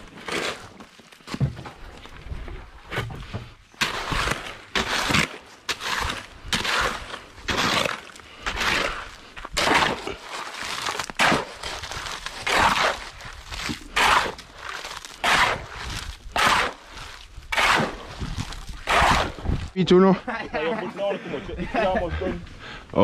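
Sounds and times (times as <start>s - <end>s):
shovel scraping wet concrete: 0.0s - 1.4s, 3.7s - 19.8s.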